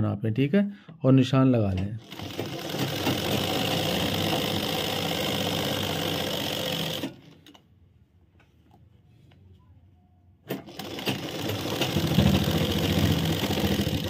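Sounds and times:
sewing machine stitching: 0:02.0 - 0:07.6, 0:10.5 - 0:14.0.

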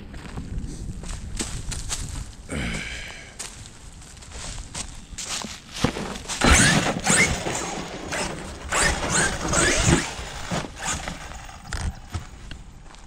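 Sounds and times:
rc truck motor whining: 0:06.4 - 0:12.1.

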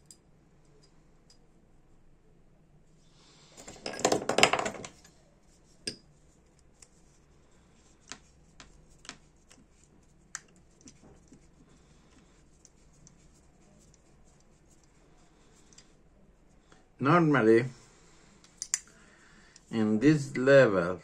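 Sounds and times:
metal tools clattering on bench: 0:03.6 - 0:05.1
screwdriver clicking on metal: 0:18.5 - 0:18.9.

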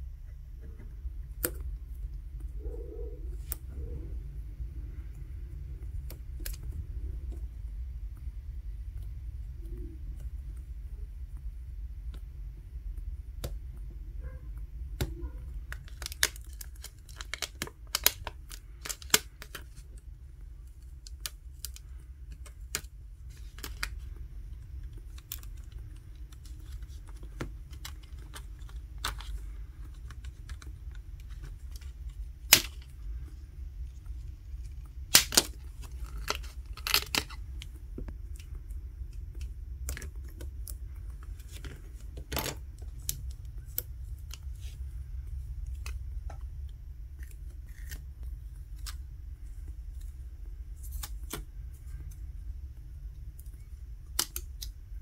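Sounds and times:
low steady hum: 0:00.0 - 0:55.0
plastic clicks and crinkles: 0:14.9 - 0:50.2, 0:53.3 - 0:54.8.

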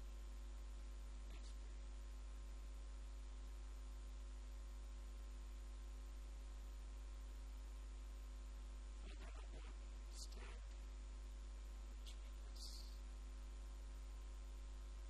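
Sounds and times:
electrical mains hum: 0:00.0 - 0:15.0
faint hiss: 0:11.9 - 0:13.0.

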